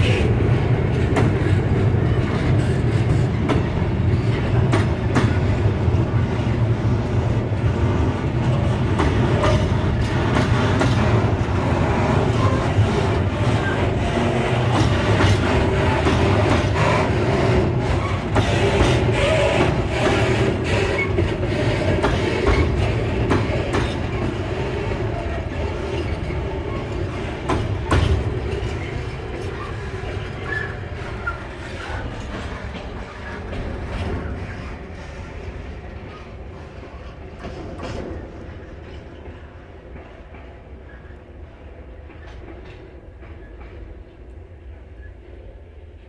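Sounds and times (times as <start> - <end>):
freight train rumble: 0.0 - 46.0
train wheels knocking on rail joints: 0.7 - 35.2, 41.9 - 44.1.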